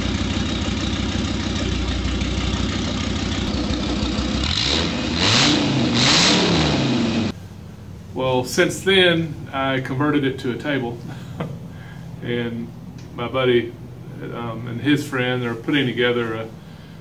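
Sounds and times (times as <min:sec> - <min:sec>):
engine idling and revving: 0:00.0 - 0:08.1.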